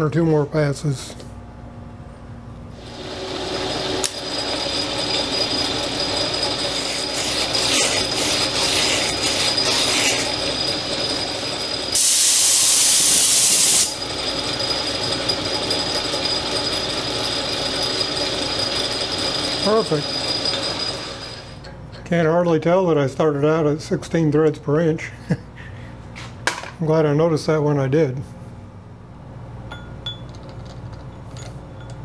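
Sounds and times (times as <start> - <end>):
metal lathe running: 2.8 - 21.8
abrasive strip rubbing threads: 6.8 - 10.4
loud steady hiss: 11.9 - 14.0.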